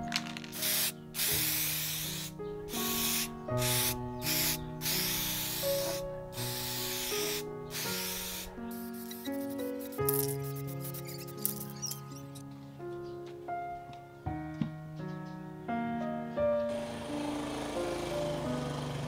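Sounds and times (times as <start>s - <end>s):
background music: 0.0s - 19.0s
spray paint can hissing: 0.2s - 12.4s.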